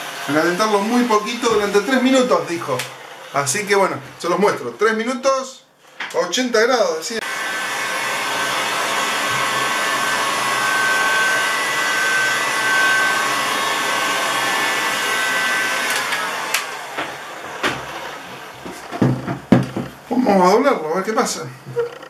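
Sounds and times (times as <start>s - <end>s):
heat gun blowing with motor whine: 7.2s - 19.0s.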